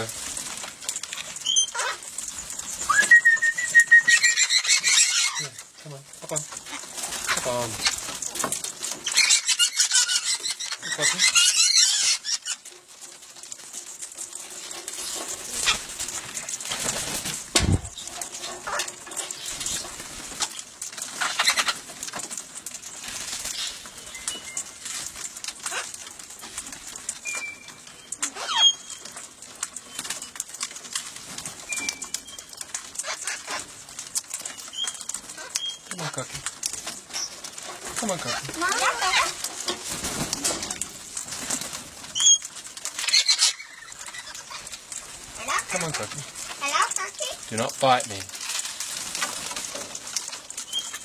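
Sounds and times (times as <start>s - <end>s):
parrots flapping wings: 0.0s - 51.0s
parrot chirps and squawks: 1.4s - 2.1s, 2.7s - 5.7s, 9.0s - 12.7s, 18.6s - 19.8s, 21.2s - 21.8s, 25.6s - 26.0s, 27.2s - 29.0s, 33.0s - 33.7s, 34.5s - 36.3s, 38.2s - 39.4s, 42.2s - 44.8s.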